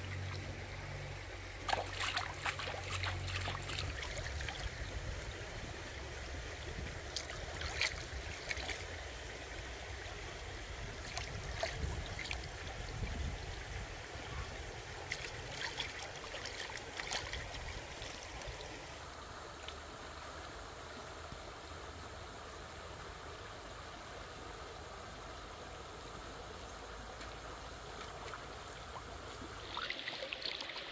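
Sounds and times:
stream running over rocks: 0:00.0 - 0:30.9
hands washing food in bowl: 0:01.6 - 0:04.2.

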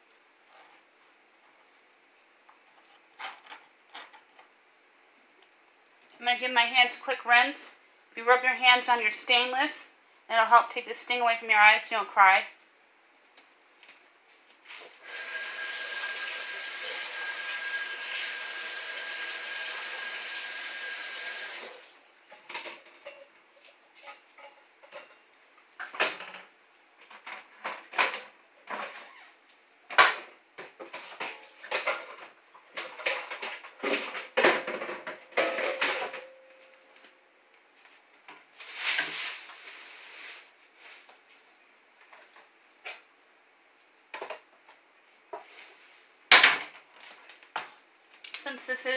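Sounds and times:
faucet running: 0:15.0 - 0:21.9
kitchen items clattering: 0:30.1 - 0:36.6.

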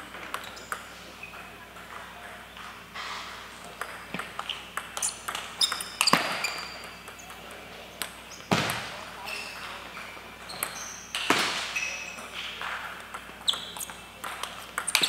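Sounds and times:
table tennis ball hits: 0:03.0 - 0:09.0, 0:10.5 - 0:15.0.

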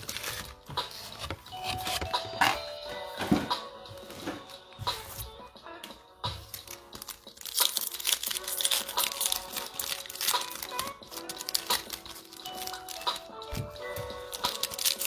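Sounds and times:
foil wrapper crinkling and tearing: 0:00.0 - 0:00.6, 0:06.5 - 0:13.3, 0:14.2 - 0:15.0
background music: 0:00.0 - 0:15.0.

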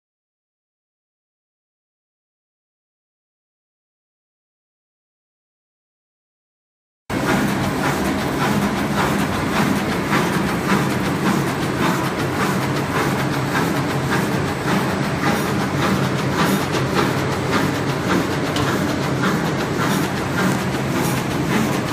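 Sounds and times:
machine clacking: 0:07.1 - 0:21.9
paper cutting machine droning: 0:07.1 - 0:21.9.

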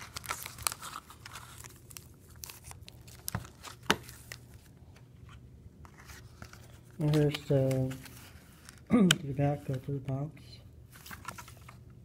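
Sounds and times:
foil card packs crinkling: 0:00.0 - 0:04.7, 0:06.0 - 0:09.9.

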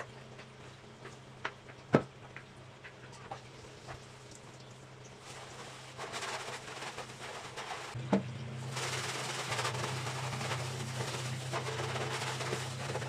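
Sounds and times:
low steady hum: 0:00.0 - 0:13.0
scrubbing on metal stove top: 0:05.2 - 0:08.0, 0:08.6 - 0:13.0.

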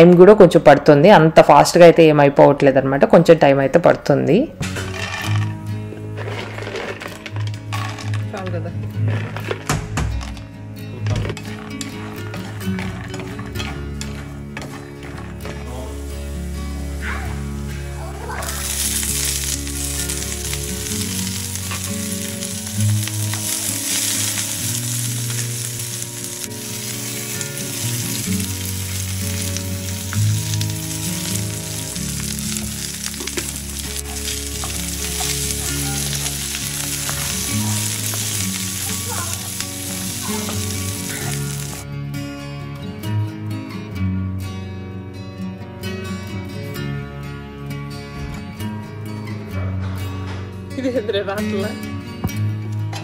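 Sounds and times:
quiet background music: 0:00.0 - 0:53.0
food sizzling in hot oil: 0:16.9 - 0:41.8.

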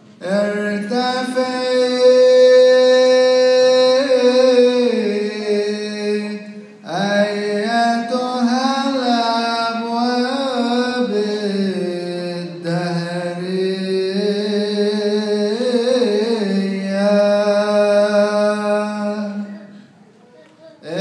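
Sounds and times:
group chanting a hymn in unison: 0:00.2 - 0:19.6.

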